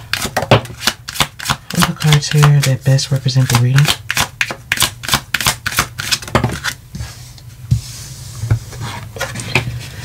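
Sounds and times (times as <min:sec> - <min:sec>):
cards shuffling clicks: 0:00.1 - 0:06.8.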